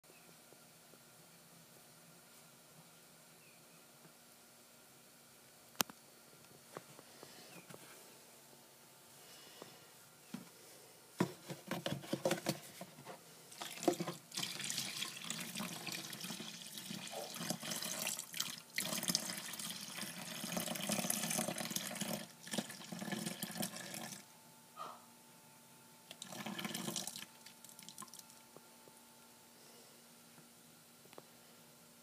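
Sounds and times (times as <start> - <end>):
water pouring into plastic basin: 13.5 - 24.2, 26.1 - 28.4.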